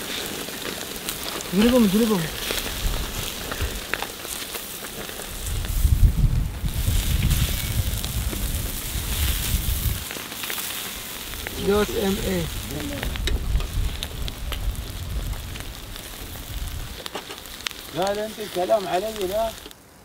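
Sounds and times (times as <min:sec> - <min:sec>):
fish sizzling on a grill: 0:00.0 - 0:20.0
person speaking: 0:01.4 - 0:02.6, 0:11.5 - 0:13.3, 0:17.9 - 0:19.6
low rumble: 0:05.2 - 0:10.1, 0:11.3 - 0:17.1.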